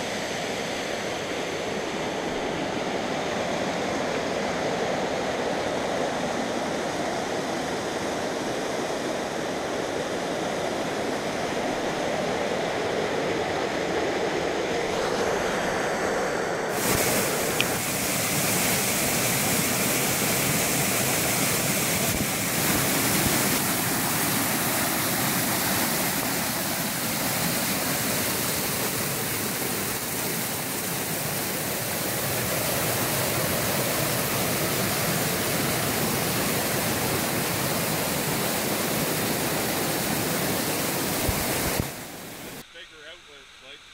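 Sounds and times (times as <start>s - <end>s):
waterfall rushing over rocks: 16.7s - 42.6s.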